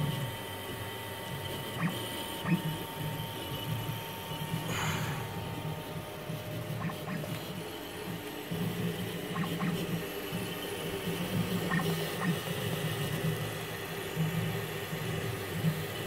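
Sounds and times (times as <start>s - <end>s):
printer motors whirring: 0.0s - 16.0s.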